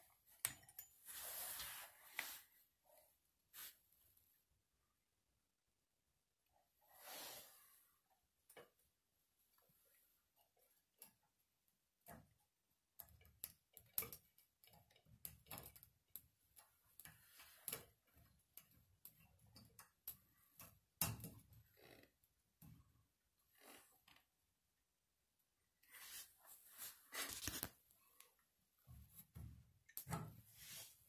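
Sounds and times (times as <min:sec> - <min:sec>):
metal clicks and taps: 0:00.4 - 0:00.9.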